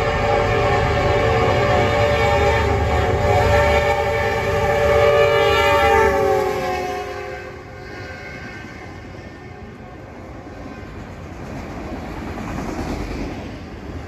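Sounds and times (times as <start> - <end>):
locomotive air horn: 0.0 - 10.2
rail cars rumbling past: 0.0 - 14.0.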